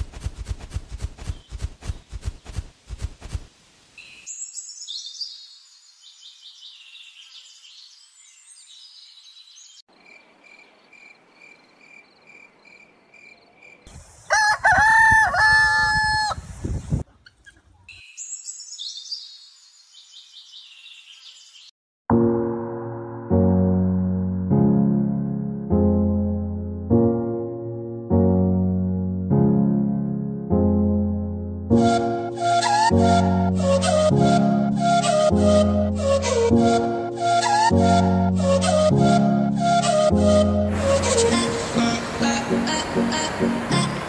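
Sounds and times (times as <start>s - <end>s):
small birds chirping: 1.2s - 2.7s, 4.0s - 14.3s, 16.7s - 21.7s
rooster crowing: 14.2s - 16.5s.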